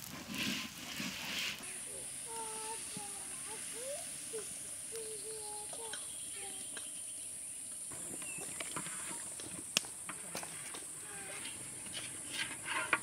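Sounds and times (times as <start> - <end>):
small clicks and crackles: 0.0 - 7.0.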